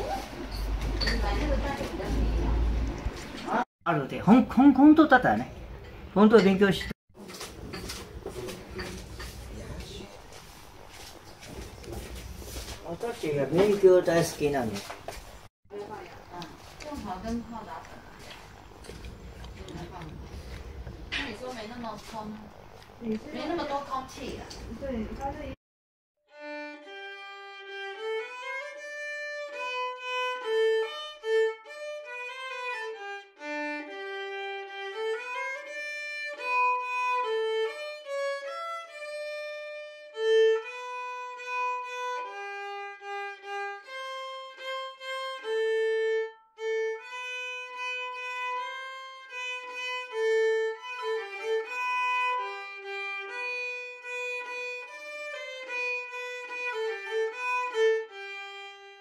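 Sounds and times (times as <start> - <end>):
solo violin melody: 26.3 - 59.0.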